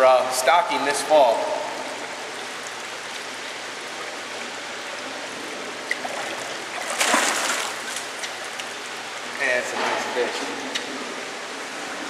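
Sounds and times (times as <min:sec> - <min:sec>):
fish splashing in water: 0:05.7 - 0:09.0
water pouring into tank: 0:06.0 - 0:08.2.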